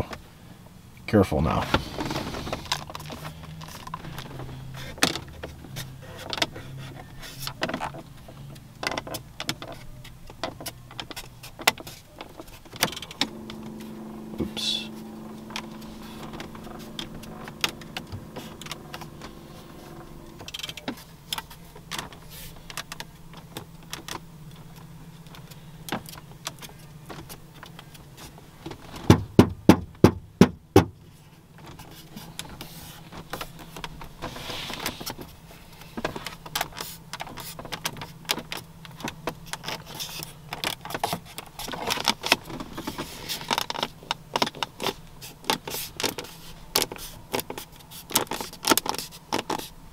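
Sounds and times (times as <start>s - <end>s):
plastic trim clicks and creaks: 2.0s - 13.6s, 15.2s - 28.0s
low hum: 12.9s - 22.3s
loud knocks on a panel: 29.0s - 31.0s.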